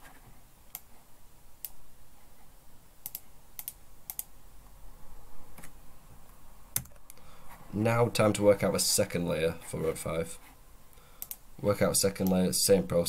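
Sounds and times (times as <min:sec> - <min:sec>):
keyboard and mouse clicks: 0:03.0 - 0:04.3, 0:06.7 - 0:07.2, 0:11.2 - 0:11.4.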